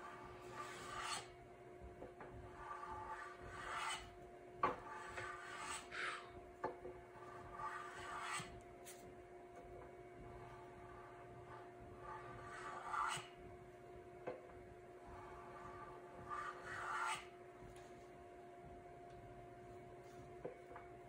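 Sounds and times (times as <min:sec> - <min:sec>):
hand tool scraping wood: 0:02.6 - 0:04.1, 0:04.8 - 0:06.3, 0:07.5 - 0:08.5, 0:12.1 - 0:13.3, 0:15.3 - 0:17.3.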